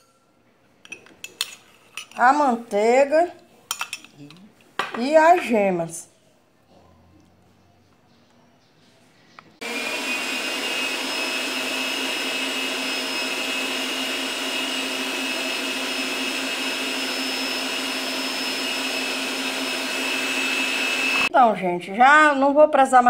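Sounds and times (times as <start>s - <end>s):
stand mixer motor whine: 9.6s - 21.3s.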